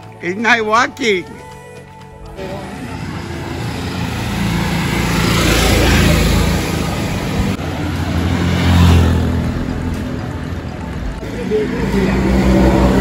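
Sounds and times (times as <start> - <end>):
bus engine approaching: 1.8 - 13.0
vehicle passing close by: 2.4 - 10.2, 11.2 - 13.0.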